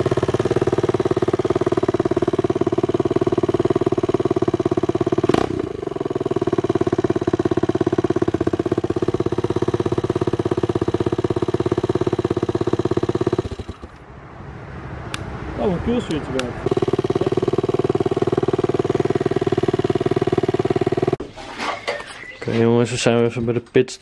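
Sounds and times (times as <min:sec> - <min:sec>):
motorbike engine idling: 0:00.0 - 0:14.0, 0:16.6 - 0:21.2.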